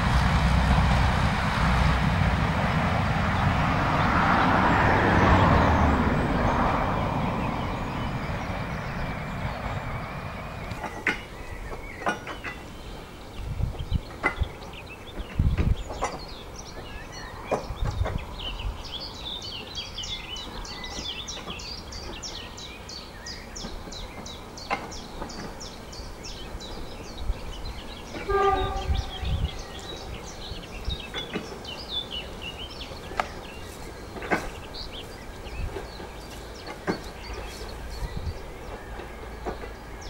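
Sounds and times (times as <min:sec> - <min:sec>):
low rumbles: 0:00.0 - 0:10.9
other birdsong: 0:00.1 - 0:40.0
distant train horn blast: 0:28.1 - 0:30.2.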